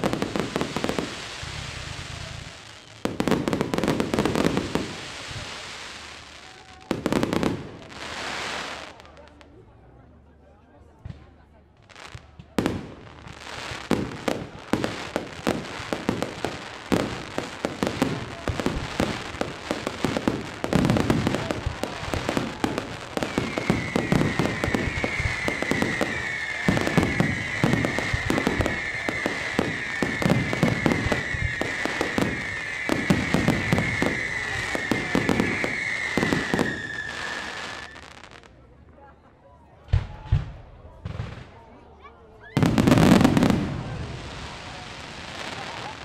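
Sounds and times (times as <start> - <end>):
fireworks bangs and crackling: 0.0 - 10.0, 10.8 - 38.7, 39.9 - 46.0
high wavering whistle: 23.2 - 38.0.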